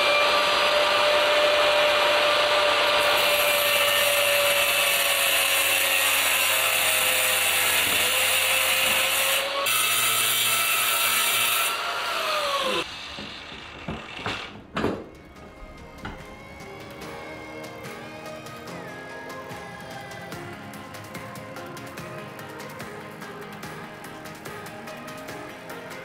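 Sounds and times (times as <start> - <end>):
power tool cutting tile: 0.0 - 18.7.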